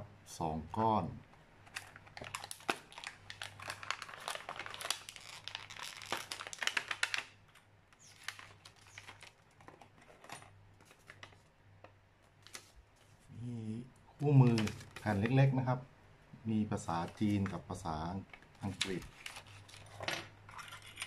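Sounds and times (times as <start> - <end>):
plastic packaging crinkling: 1.6 - 11.5, 14.4 - 15.4, 18.2 - 21.0.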